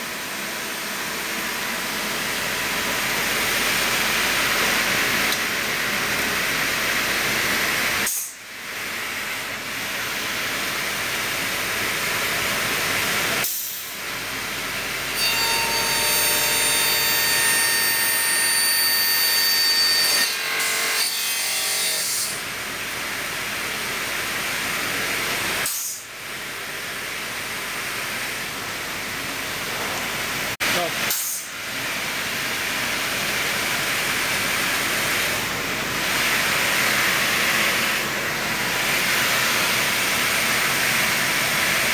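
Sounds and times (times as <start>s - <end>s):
high saw whine: 15.1s - 20.4s.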